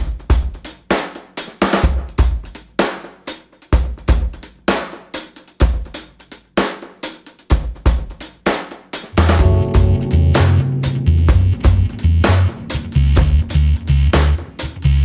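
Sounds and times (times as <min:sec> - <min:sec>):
drum kit playing steady beat: 0:00.0 - 0:15.0.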